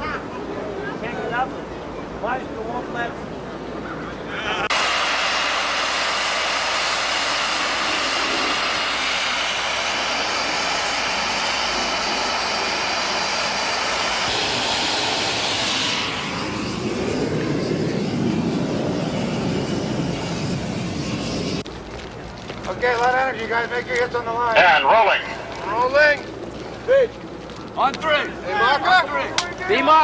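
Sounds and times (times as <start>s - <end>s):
low rushing rumble: 4.2s - 24.5s
vapour jetting hiss: 4.7s - 17.2s.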